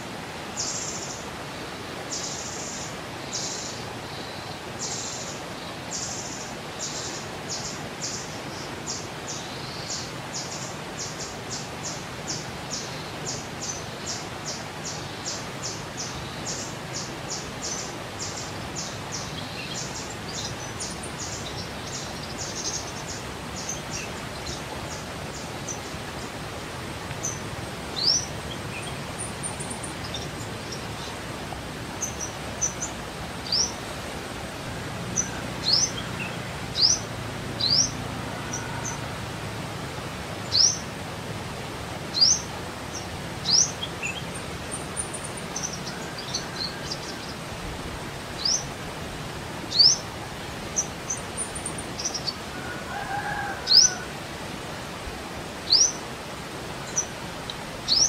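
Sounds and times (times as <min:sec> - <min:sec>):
background hiss: 0:00.0 - 0:58.0.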